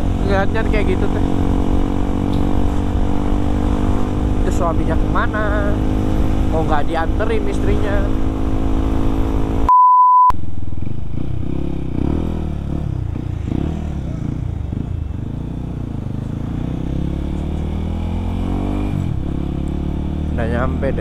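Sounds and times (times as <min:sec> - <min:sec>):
motorcycle engine revving: 0:00.0 - 0:09.7, 0:10.5 - 0:21.0
beep tone: 0:09.7 - 0:10.4.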